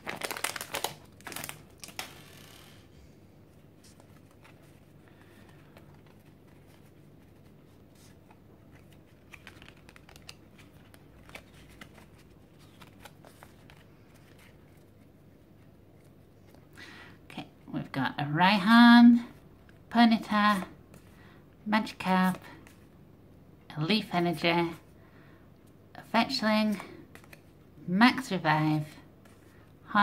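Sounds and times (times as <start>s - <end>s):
trading cards rustling and sliding: 0.2s - 16.2s, 26.6s - 27.6s.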